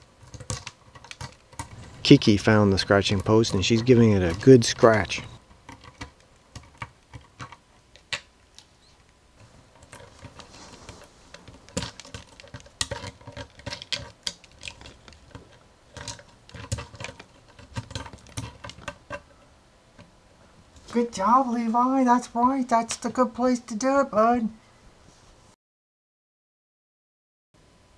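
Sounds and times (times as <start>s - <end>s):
cat claws scratching bark: 0.0s - 20.1s.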